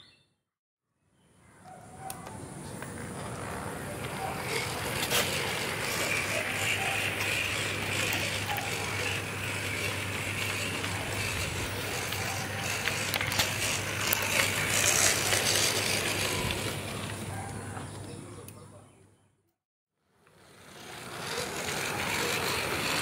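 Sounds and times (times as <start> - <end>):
model locomotive mechanism whirring: 2.1 - 17.3, 20.1 - 23.0.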